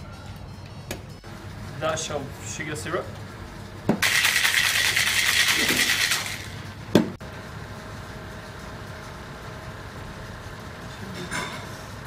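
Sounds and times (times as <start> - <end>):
ice rattling in metal shaker: 4.0 - 6.6.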